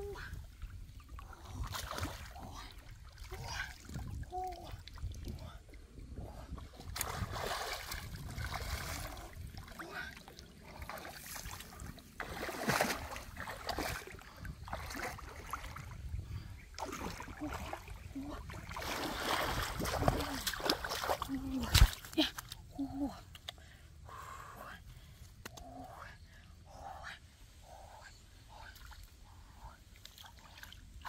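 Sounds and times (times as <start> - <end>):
muddy water splashing: 0.1 - 23.7
legs wading through water: 6.6 - 22.4.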